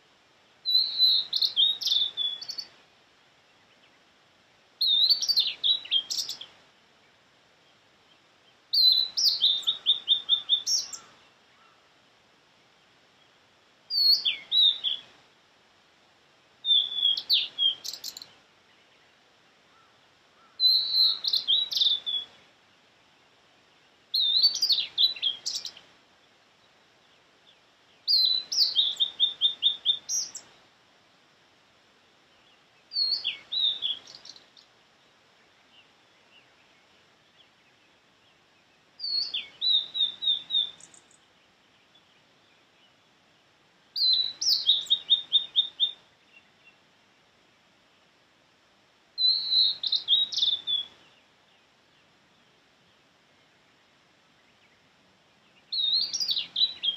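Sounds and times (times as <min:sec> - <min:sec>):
bird singing whistled phrases: 0:00.6 - 0:02.7, 0:04.8 - 0:06.5, 0:08.7 - 0:11.1, 0:13.9 - 0:15.0, 0:16.6 - 0:18.3, 0:20.4 - 0:22.4, 0:24.1 - 0:25.8, 0:28.1 - 0:30.4, 0:32.9 - 0:34.4, 0:39.0 - 0:41.1, 0:44.0 - 0:46.0, 0:49.2 - 0:51.0, 0:55.7 - 0:56.9.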